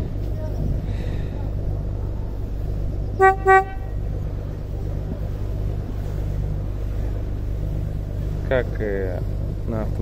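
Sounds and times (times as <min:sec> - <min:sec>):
boat engine drone: 0:00.0 - 0:10.0
boat horn toots: 0:03.2 - 0:04.0.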